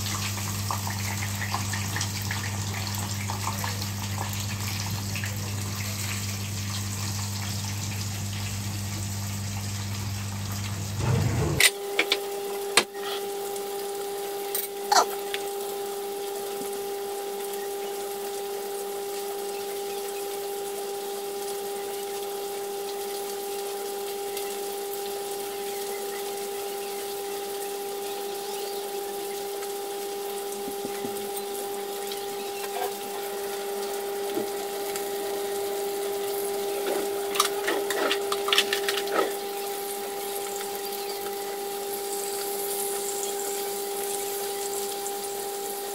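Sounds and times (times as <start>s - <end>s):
constant humming tone: 0.0s - 45.9s
fish sizzling in oil: 0.0s - 45.9s
forks clicking and scraping pan: 36.8s - 39.4s.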